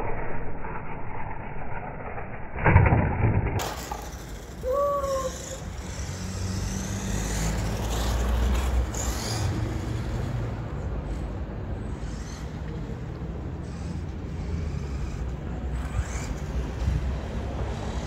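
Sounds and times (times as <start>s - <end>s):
road traffic rumble: 3.6s - 18.0s.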